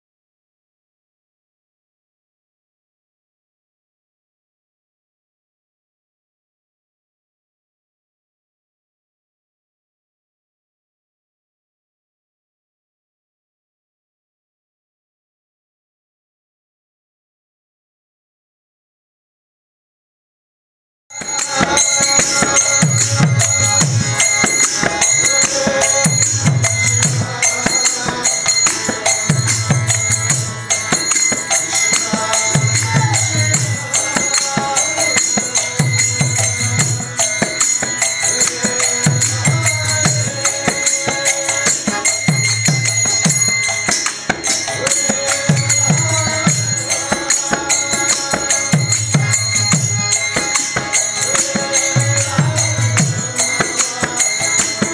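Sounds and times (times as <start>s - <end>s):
man chanting: 21.2s - 43.8s, 44.7s - 54.9s
harmonium drone: 21.2s - 54.9s
jingling hand cymbals: 21.2s - 54.9s.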